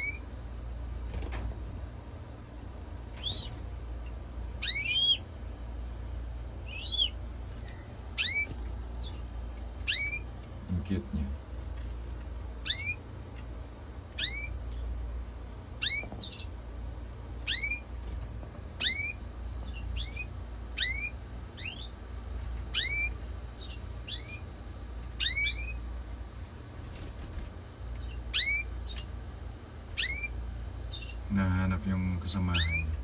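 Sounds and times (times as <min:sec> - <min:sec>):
canary calling: 0:00.0 - 0:00.3, 0:03.2 - 0:05.4, 0:06.6 - 0:10.4, 0:12.6 - 0:14.9, 0:15.7 - 0:16.6, 0:17.4 - 0:17.9, 0:18.8 - 0:22.0, 0:22.6 - 0:25.8, 0:27.9 - 0:29.3, 0:29.9 - 0:31.4, 0:32.4 - 0:33.0
low steady hum: 0:00.0 - 0:33.0.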